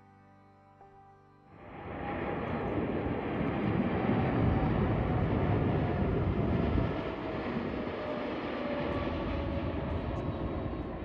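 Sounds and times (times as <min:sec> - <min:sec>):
loud jet rumble with whine: 0:01.6 - 0:11.0.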